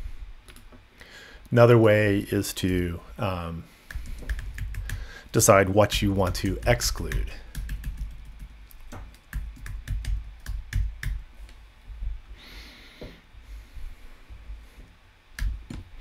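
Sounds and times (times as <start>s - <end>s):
soft hiss: 0.0s - 16.0s.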